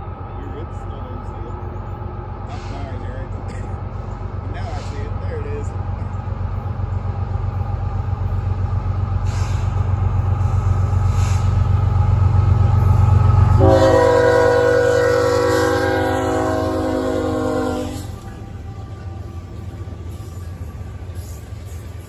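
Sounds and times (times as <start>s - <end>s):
diesel locomotive engine rumble: 0.0s - 22.0s
train air horn: 13.5s - 19.6s.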